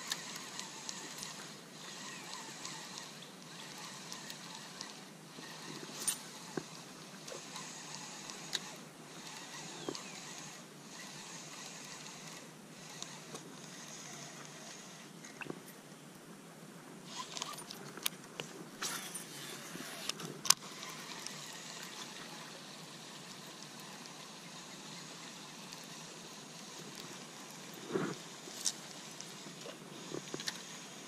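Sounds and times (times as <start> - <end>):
river water trickling: 20.6 - 29.4.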